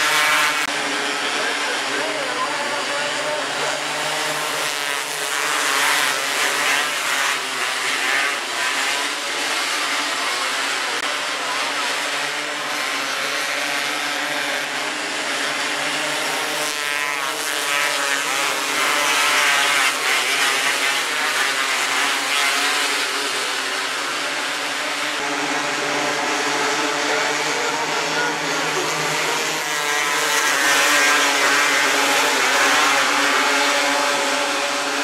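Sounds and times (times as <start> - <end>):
racing car engines revving: 0.0 - 35.0.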